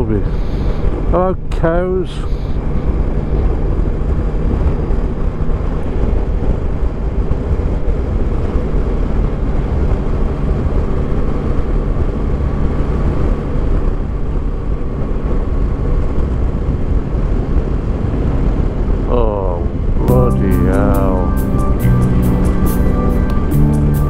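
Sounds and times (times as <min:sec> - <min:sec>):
wind rumble: 0:02.5 - 0:20.2.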